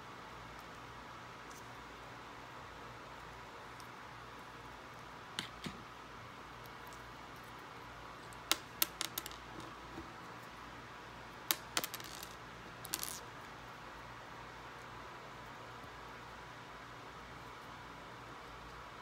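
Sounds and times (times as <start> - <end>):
plastic bricks clicking and clattering: 8.3 - 10.0, 11.5 - 13.2.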